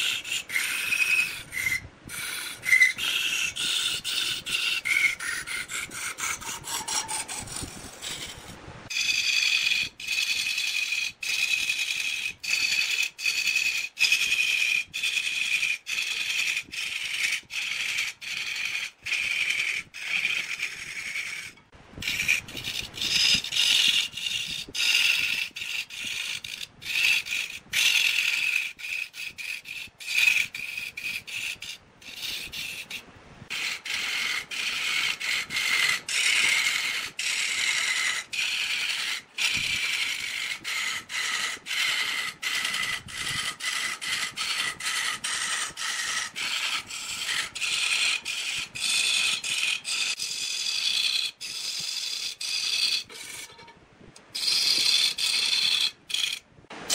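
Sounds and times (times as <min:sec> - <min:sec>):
lathe tool scraping wood: 0:00.0 - 0:56.9.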